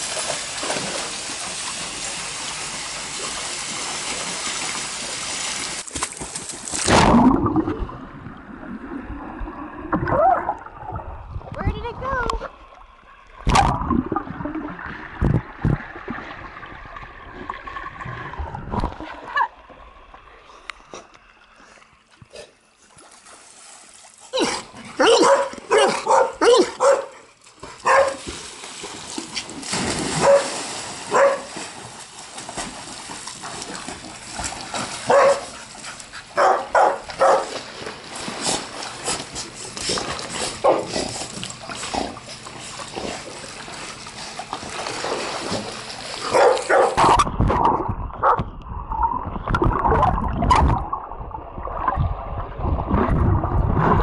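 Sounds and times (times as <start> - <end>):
water splashing: 0.0 - 54.0
dogs barking in short bursts: 25.0 - 27.2, 27.8 - 28.2, 30.2 - 31.5, 35.1 - 35.5, 36.4 - 37.5, 46.2 - 47.2.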